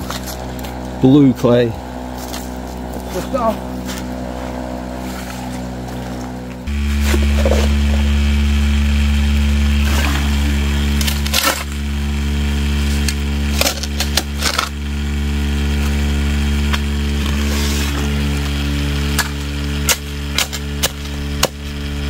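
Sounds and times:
gravel scraping and clattering: 0:00.0 - 0:22.0
vibrating motor hum: 0:00.0 - 0:22.0.

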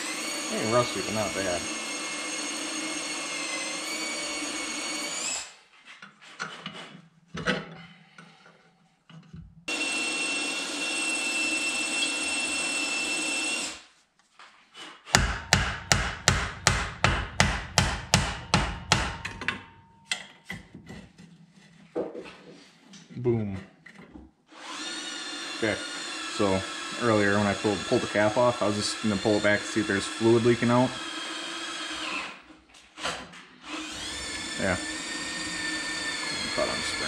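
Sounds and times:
power tool whining: 0:00.0 - 0:05.6, 0:09.7 - 0:13.9, 0:24.5 - 0:32.4, 0:33.0 - 0:37.0
hammer striking metal: 0:15.2 - 0:20.3.

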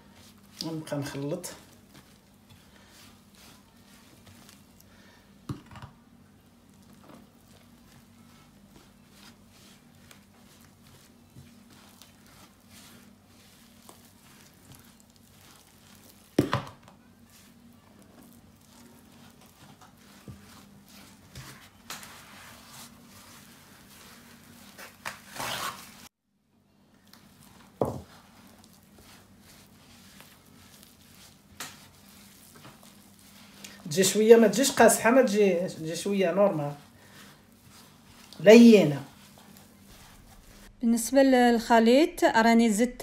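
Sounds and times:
hand squishing dough: 0:00.0 - 0:26.1, 0:26.9 - 0:42.3.

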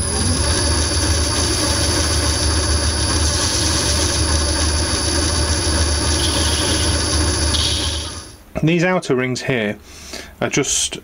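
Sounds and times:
high-pitched whine: 0:00.0 - 0:08.4
lathe motor hum: 0:00.0 - 0:08.4.

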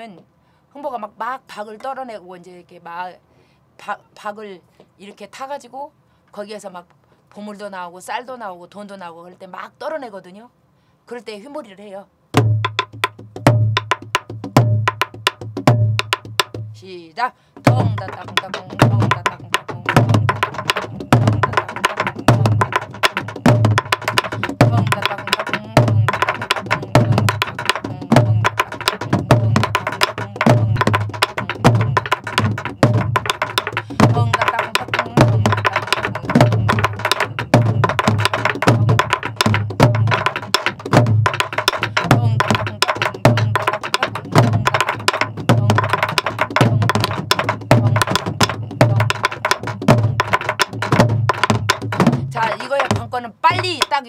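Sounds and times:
deep drum thumps: 0:12.3 - 0:16.8, 0:17.6 - 0:54.0.

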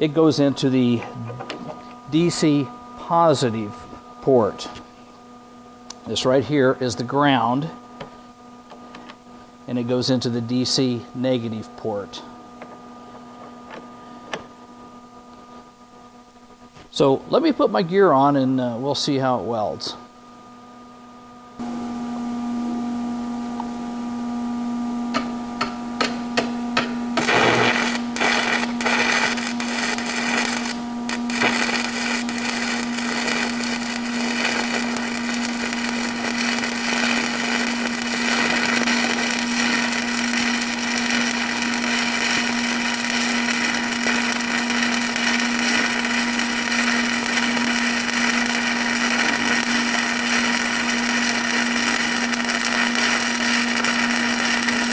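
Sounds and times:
welding arc crackling: 0:25.1 - 0:54.9.

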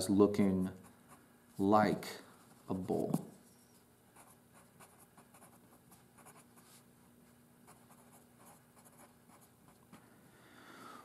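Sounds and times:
faint steady hum: 0:00.0 - 0:11.0
pencil scratching on paper: 0:04.2 - 0:06.8, 0:07.7 - 0:09.6.

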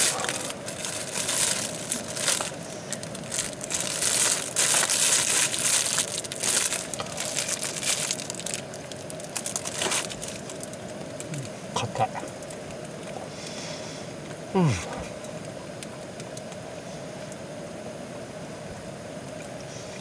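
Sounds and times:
plastic wrapper crinkling: 0:00.0 - 0:11.4.

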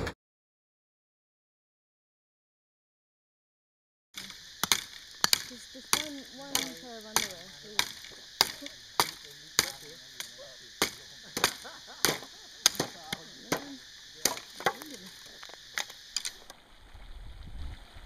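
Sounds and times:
machete chopping branch: 0:04.2 - 0:16.5.

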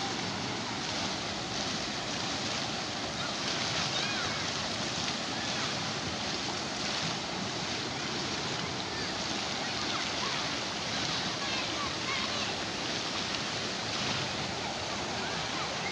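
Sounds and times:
water rushing down slide and splashing: 0:00.0 - 0:15.9.

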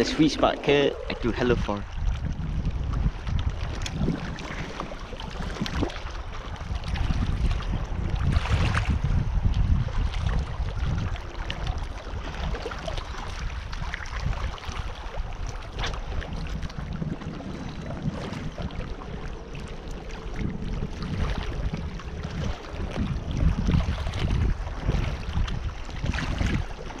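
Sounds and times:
small waves lapping: 0:00.0 - 0:27.0
wind buffeting microphone: 0:00.0 - 0:27.0.

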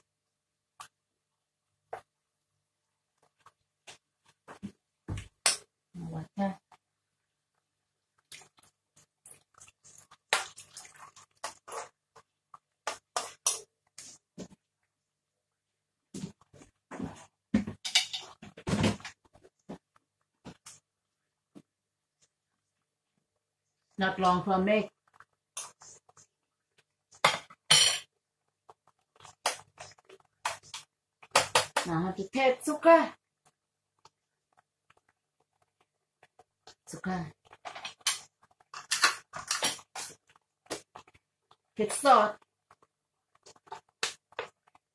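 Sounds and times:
liquid sloshing: 0:08.2 - 0:13.4
metal spoon scraping a pan: 0:10.9 - 0:12.0, 0:37.5 - 0:41.1.

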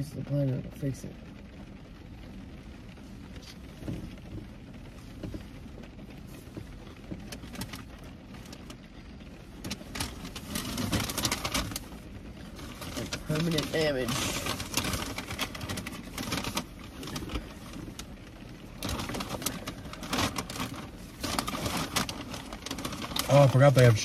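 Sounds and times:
car interior hum: 0:00.0 - 0:24.0
paper bag rustling: 0:09.7 - 0:18.0, 0:18.6 - 0:24.0.

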